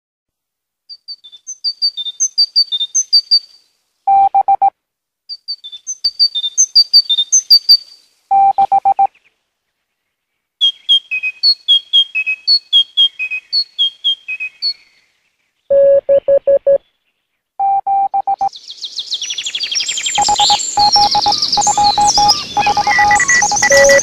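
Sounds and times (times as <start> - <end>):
short high electronic beeps: 8.3 - 9.1, 15.7 - 16.8, 17.6 - 18.5, 20.2 - 24.0.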